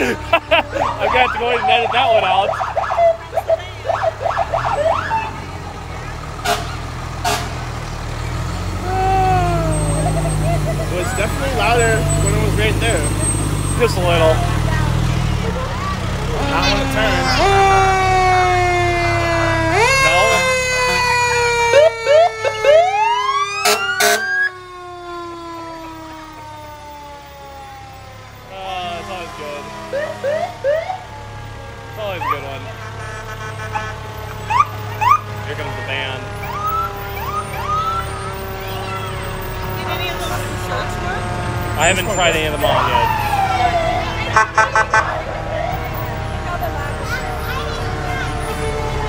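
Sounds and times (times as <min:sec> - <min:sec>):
siren winding down: 0:00.0 - 0:05.5, 0:08.8 - 0:14.8, 0:15.4 - 0:32.8, 0:33.4 - 0:49.0
diesel engine running: 0:00.0 - 0:49.0
horn blasts: 0:06.4 - 0:07.8, 0:23.6 - 0:24.5, 0:32.6 - 0:34.2, 0:44.2 - 0:45.2.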